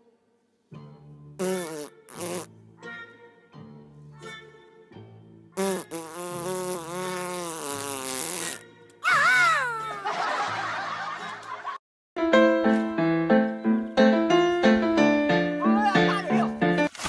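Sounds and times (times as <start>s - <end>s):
comic fart sound effect: 1.4s - 2.5s, 5.6s - 8.7s.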